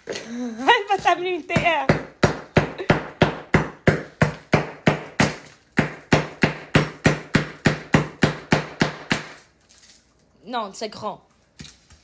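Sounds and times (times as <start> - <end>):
knife chopping hard sugar: 0.9 - 9.5.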